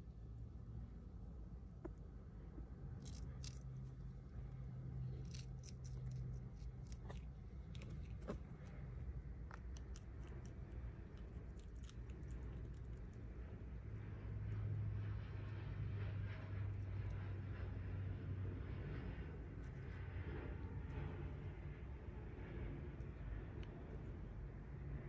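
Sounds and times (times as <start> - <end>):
low steady hum: 0.0 - 25.0
animal crunching dried fish: 2.8 - 13.6.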